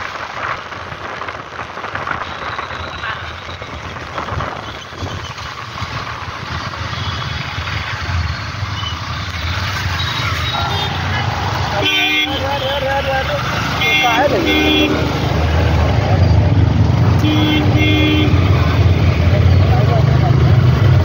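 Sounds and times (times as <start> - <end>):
wind and tyre spray hiss: 0.0 - 10.4.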